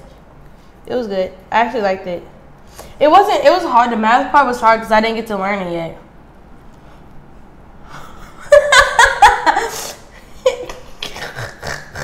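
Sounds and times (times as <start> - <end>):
girl laughing: 8.0 - 12.0.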